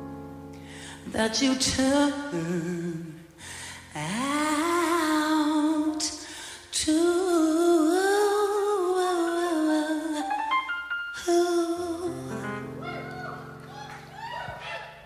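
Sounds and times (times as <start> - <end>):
woman singing with vibrato: 1.0 - 3.3, 3.9 - 10.5, 11.2 - 12.8.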